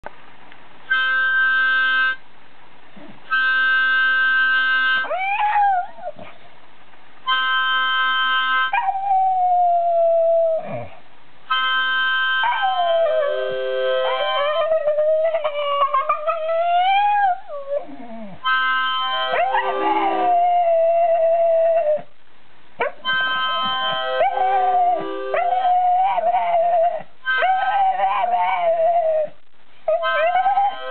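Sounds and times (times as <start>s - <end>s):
harmonica chords: 0.9s - 2.2s, 3.3s - 5.1s, 7.3s - 8.7s, 11.5s - 12.4s, 13.3s - 14.4s, 18.4s - 20.3s, 23.0s - 25.7s, 30.0s - 30.9s
dog howling: 5.0s - 6.2s, 12.3s - 22.1s, 22.8s - 30.9s.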